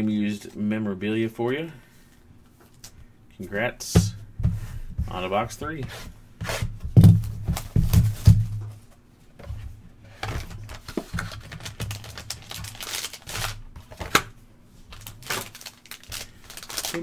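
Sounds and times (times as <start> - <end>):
cardboard box knocks and thuds: 6.7 - 8.8.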